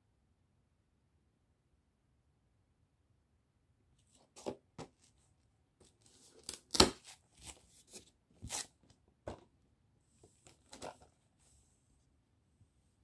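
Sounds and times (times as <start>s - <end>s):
cardboard packaging scraping and rustling: 5.9s - 8.8s.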